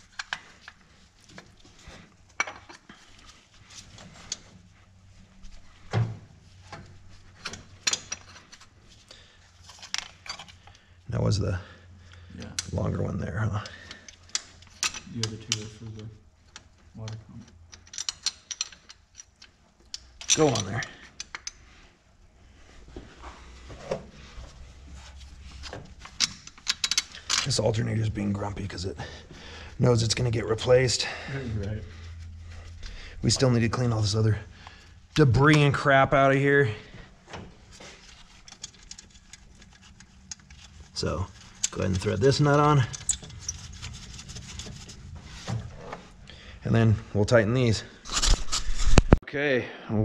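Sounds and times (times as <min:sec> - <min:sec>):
metallic clinks and knocks: 0:13.7 - 0:15.8, 0:16.4 - 0:21.7, 0:25.3 - 0:27.7, 0:38.0 - 0:45.4
sharp metal clicks and knocks: 0:16.5 - 0:21.6, 0:25.6 - 0:27.6.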